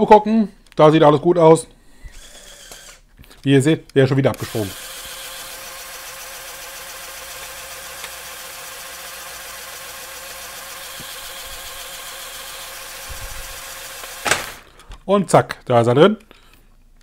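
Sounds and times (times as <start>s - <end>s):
small electric motors whirring: 2.1s - 3.0s, 4.4s - 14.7s.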